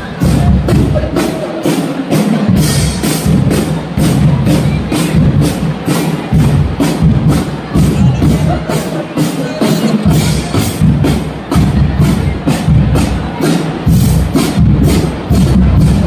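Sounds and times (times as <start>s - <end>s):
music with steady percussive beat: 0.0s - 16.0s.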